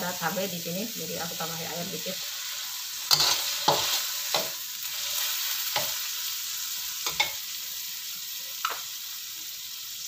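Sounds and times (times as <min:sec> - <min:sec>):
chili paste sizzling in a wok: 0:00.0 - 0:10.0
metal spatula scraping a wok: 0:01.5 - 0:06.2.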